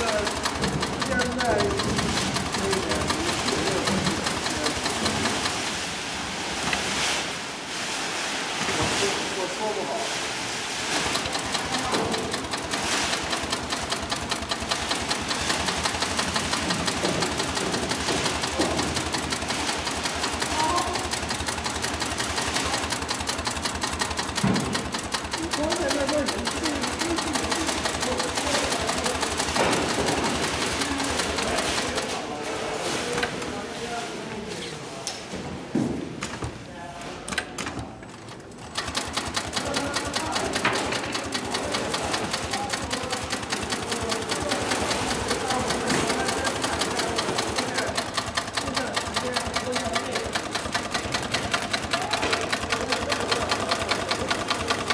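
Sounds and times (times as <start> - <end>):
sewing machine clattering: 0.0 - 7.0, 10.7 - 33.6, 37.2 - 54.9.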